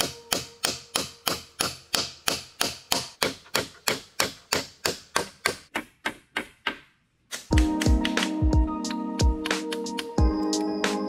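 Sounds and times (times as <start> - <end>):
hammer driving nails into wood: 0.0 - 8.2.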